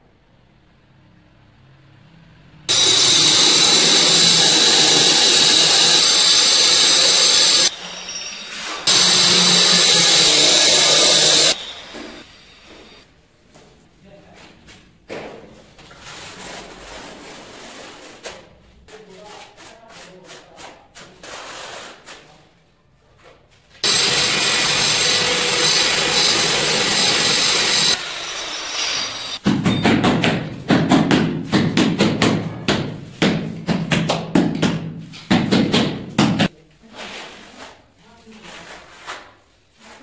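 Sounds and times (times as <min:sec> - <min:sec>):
power tool running: 0:02.7 - 0:13.0, 0:23.8 - 0:29.4
dull knocks patting tile: 0:29.4 - 0:36.5.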